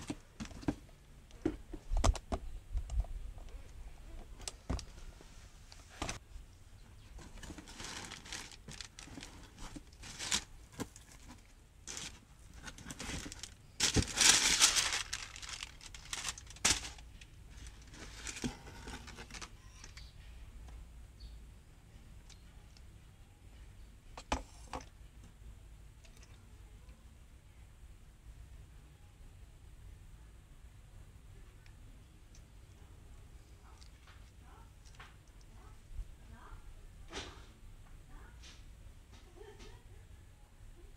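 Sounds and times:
packing paper crinkling: 7.2 - 20.0.

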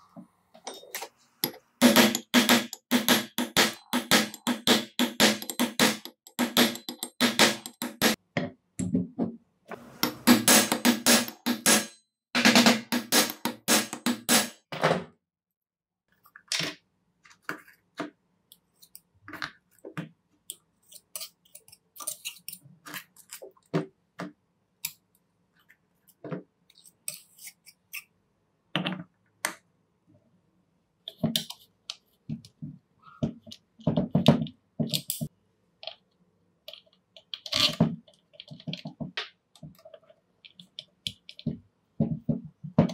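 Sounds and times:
background music with steady beat: 1.8 - 8.2, 10.1 - 14.6.

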